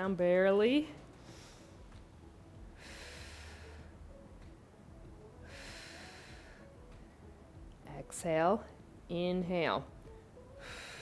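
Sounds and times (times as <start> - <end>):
woman breathing: 1.0 - 4.2, 5.3 - 7.1, 10.4 - 11.0.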